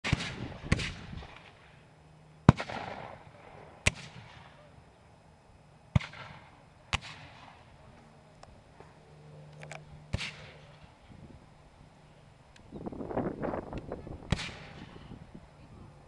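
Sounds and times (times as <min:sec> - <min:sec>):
musket shots with echo: 0:00.0 - 0:01.6, 0:02.4 - 0:04.6, 0:05.9 - 0:07.7, 0:10.1 - 0:10.7, 0:14.3 - 0:15.0.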